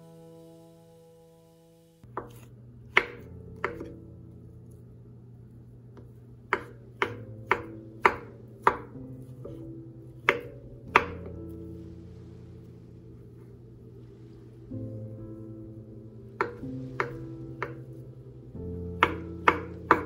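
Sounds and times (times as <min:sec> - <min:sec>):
knife chopping on cutting board: 0:02.1 - 0:03.9, 0:06.5 - 0:09.6.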